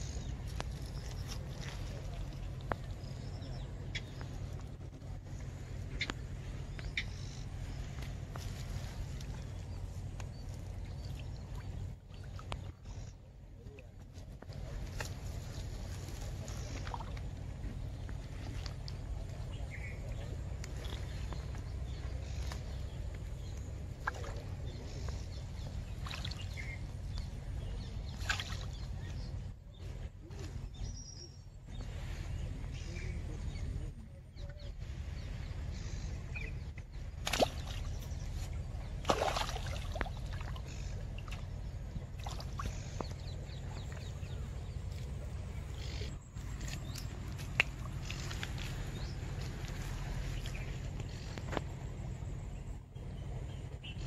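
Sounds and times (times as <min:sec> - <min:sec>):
steady low rumble: 0:00.0 - 0:54.0
fish splashing: 0:37.2 - 0:38.2, 0:38.9 - 0:43.2.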